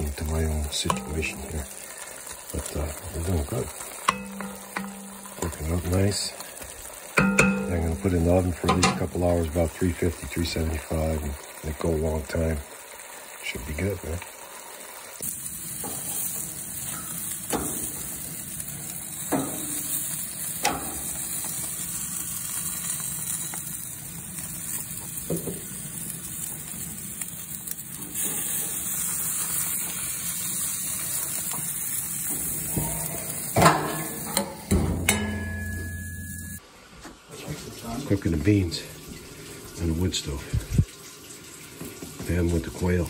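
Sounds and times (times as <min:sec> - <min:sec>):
meat sizzling on a grill: 0:00.0 - 0:43.0
knocks on grill: 0:33.6 - 0:35.4.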